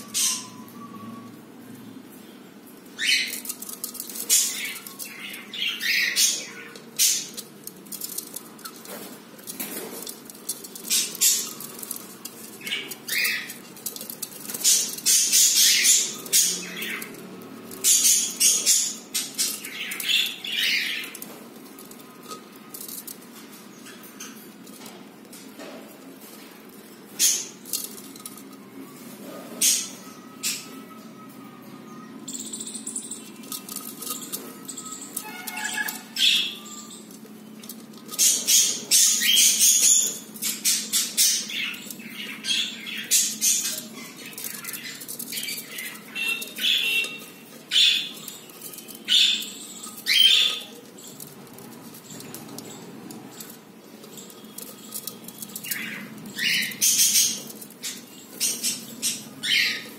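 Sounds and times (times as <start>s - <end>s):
budgerigars chirping and squawking: 0.0s - 0.8s, 2.9s - 7.4s, 12.6s - 21.4s, 31.9s - 51.3s, 52.0s - 59.9s.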